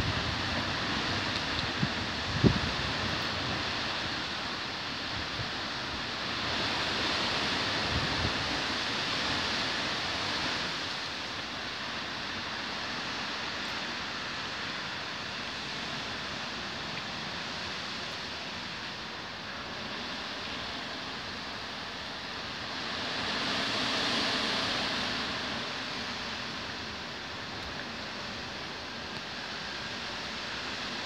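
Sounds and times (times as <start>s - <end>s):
wind gust on microphone: 0.0s - 11.1s
wind rustling leaves: 0.0s - 31.0s.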